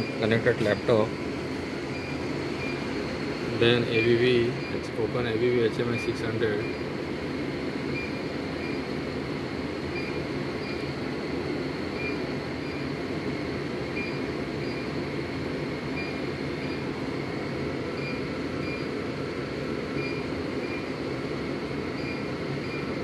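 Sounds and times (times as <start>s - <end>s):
high electronic beeps: 0.0s - 1.2s, 1.9s - 2.8s, 3.5s - 6.9s, 9.9s - 10.9s
machine-room drone: 0.0s - 23.0s.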